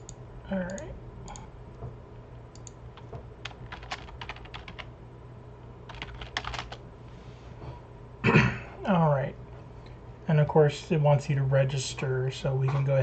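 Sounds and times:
computer keyboard typing: 2.5 - 4.9, 5.9 - 6.8.

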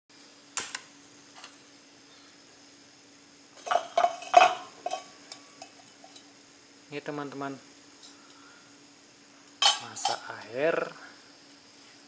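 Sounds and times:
faint steady hum: 0.1 - 12.0.

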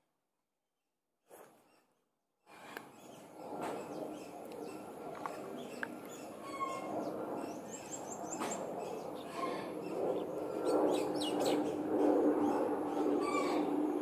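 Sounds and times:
steady low hum: 2.5 - 14.0
birds chirping: 2.8 - 14.0.

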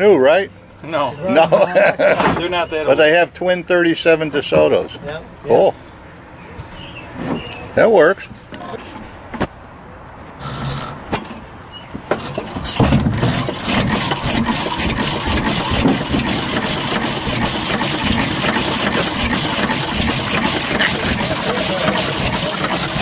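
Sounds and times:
engine flywheel turned by hand: 10.4 - 11.4, 12.0 - 23.0
gas engine running: 12.2 - 23.0.

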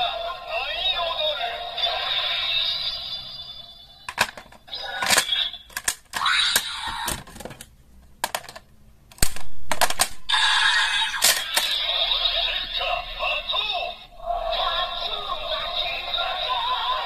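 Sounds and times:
toy electronic voice: 0.0 - 7.2, 10.3 - 17.0
plastic toy clicks and clatter: 4.1 - 10.2, 11.2 - 11.8.

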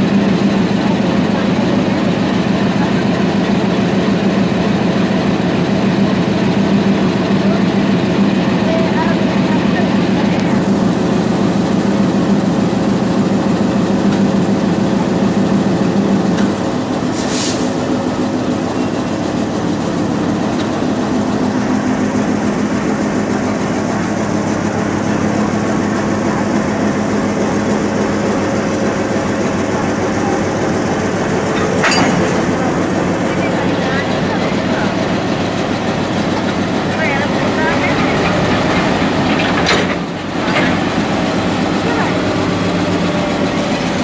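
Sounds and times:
diesel locomotive engine running: 0.0 - 44.0
short hiss: 17.1 - 17.7.

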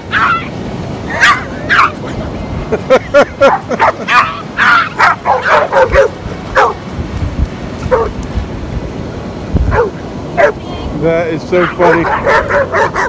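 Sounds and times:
small dog yapping: 0.1 - 0.5, 1.1 - 2.0, 3.8 - 6.8, 11.8 - 13.0.

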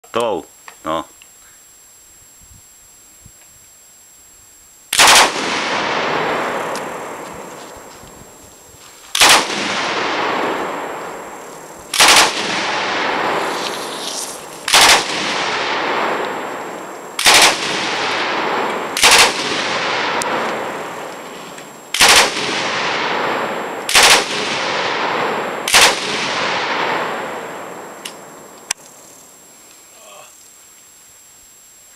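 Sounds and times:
long gunfire echo: 4.9 - 7.5, 9.1 - 21.2, 21.9 - 28.5
machine gun bursts: 5.0 - 5.5, 9.2 - 9.9, 11.9 - 12.7, 14.6 - 15.6, 17.2 - 18.2, 19.0 - 20.1, 21.9 - 22.6, 23.9 - 24.7, 25.6 - 26.2.

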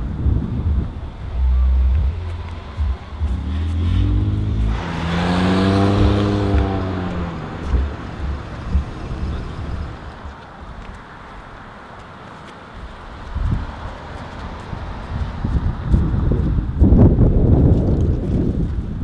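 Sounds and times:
wind buffeting microphone: 0.0 - 19.0
car driving past: 1.2 - 10.4.

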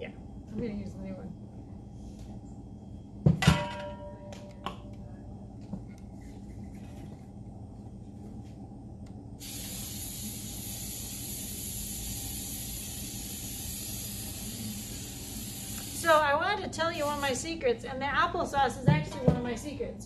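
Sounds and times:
aerosol spray hissing: 9.4 - 16.2, 17.0 - 17.4.

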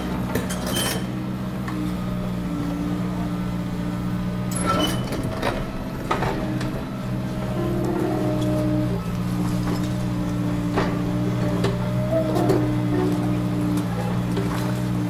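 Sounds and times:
excavator diesel engine drone: 0.0 - 15.0
hydraulic whine: 0.0 - 15.0.

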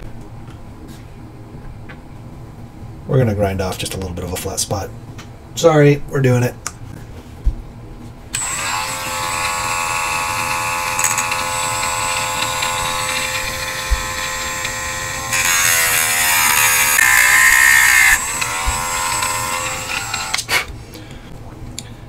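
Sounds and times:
rotary grinding tool whine: 8.3 - 20.5
hissing grind on steel shaft: 8.4 - 20.5.

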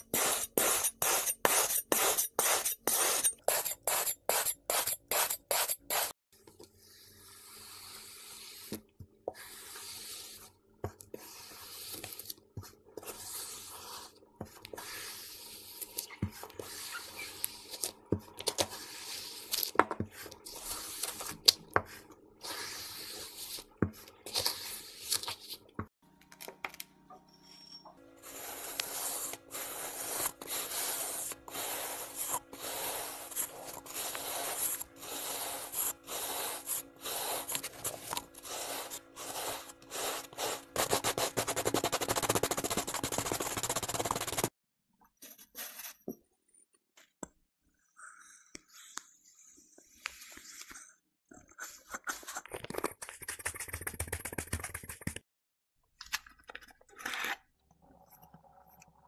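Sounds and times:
knife slicing kinetic sand: 0.0 - 6.1, 7.4 - 12.4, 13.0 - 19.7, 22.4 - 25.6, 28.2 - 44.5
metal scoop scraping sand: 28.2 - 44.5.

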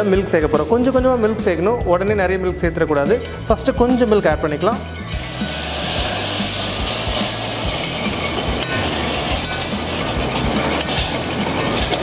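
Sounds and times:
milk sizzling in hot pan: 4.8 - 12.0
utensil scraping a pan: 4.9 - 12.0.

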